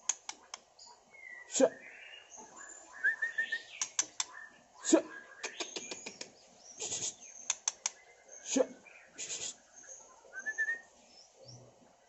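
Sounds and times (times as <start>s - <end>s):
sharp clicks: 0.0s - 0.7s, 3.8s - 4.3s, 5.5s - 6.3s, 7.4s - 8.0s
bird whistling and trilling: 2.6s - 6.2s, 9.2s - 10.9s.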